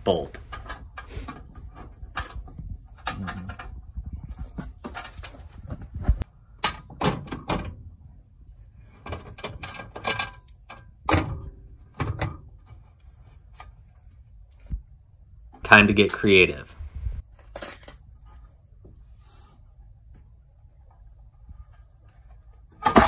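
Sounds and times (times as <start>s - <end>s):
metal plate knocking and clunking: 22.6s - 23.0s.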